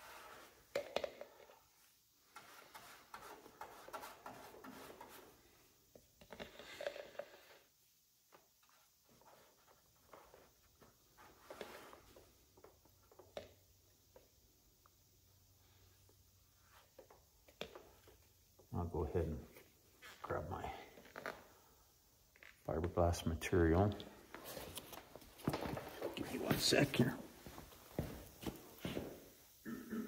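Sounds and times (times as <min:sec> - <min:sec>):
brush clicking and scraping: 0:02.3 - 0:05.3
rubber gloves rustling: 0:24.0 - 0:29.5.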